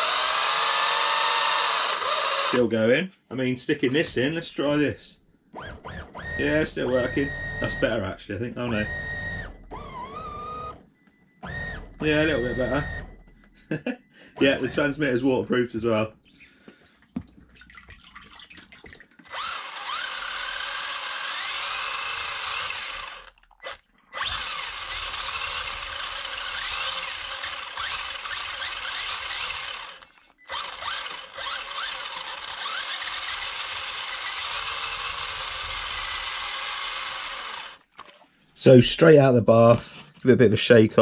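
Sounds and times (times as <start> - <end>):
toy car electric motor whirring: 0.0 - 2.6, 5.6 - 8.0, 8.6 - 10.8, 14.4 - 15.2, 19.2 - 37.8.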